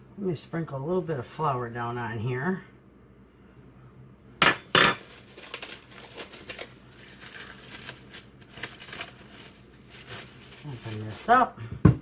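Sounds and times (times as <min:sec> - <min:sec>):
plastic bag crinkling: 0:05.0 - 0:11.4.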